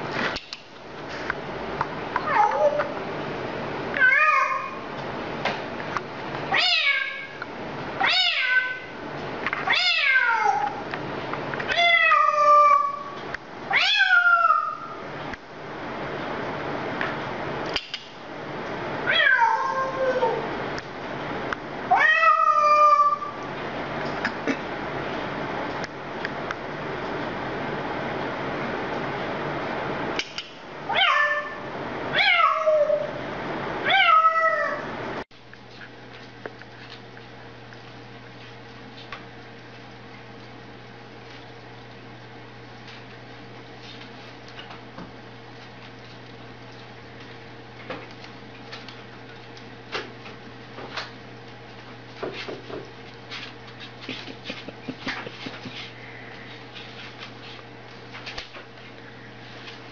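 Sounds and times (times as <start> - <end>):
parrot imitating cat meow: 6.5 - 7.4, 8.0 - 8.9, 9.7 - 10.8, 11.7 - 15.0, 19.1 - 20.4.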